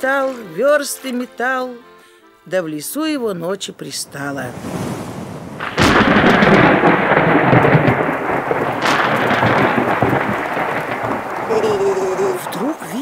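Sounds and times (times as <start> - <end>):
thunder rumbling: 3.9 - 13.0
heavy rain: 4.1 - 13.0.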